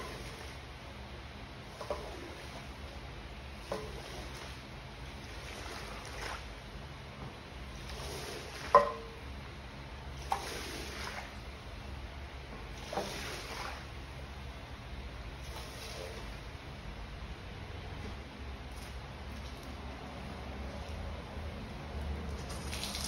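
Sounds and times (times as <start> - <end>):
squeegee swishing water off rug: 0.0 - 0.7, 1.7 - 2.9, 3.6 - 6.6, 7.6 - 9.0, 10.1 - 11.5, 12.7 - 14.0, 15.4 - 16.5, 22.3 - 23.0.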